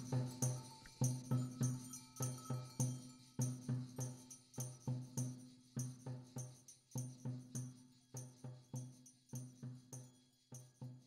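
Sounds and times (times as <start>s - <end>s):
percussion rhythm with jingle: 0.0s - 11.0s.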